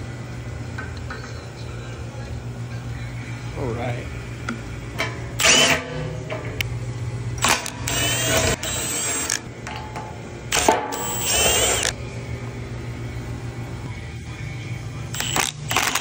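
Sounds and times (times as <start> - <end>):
steady low hum: 0.0 - 16.0
cordless power tool whining: 7.5 - 9.4, 10.6 - 11.9.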